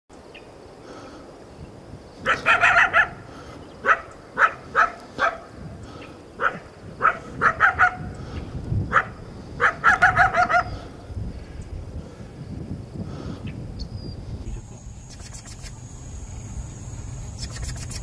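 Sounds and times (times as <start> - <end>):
coyote barking and yipping: 2.2 - 5.6, 6.4 - 8.1, 8.9 - 10.9, 14.8 - 16.0, 17.2 - 18.0.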